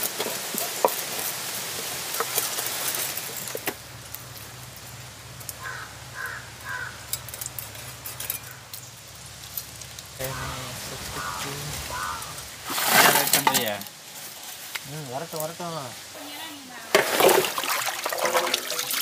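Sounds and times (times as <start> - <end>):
bird calling: 5.5 - 9.2, 10.2 - 13.1.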